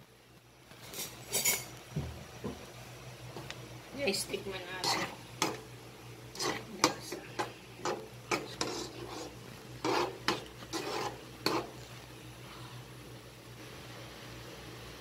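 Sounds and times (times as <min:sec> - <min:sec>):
wooden spatula scraping a pan: 0:04.2 - 0:05.6, 0:06.3 - 0:12.0.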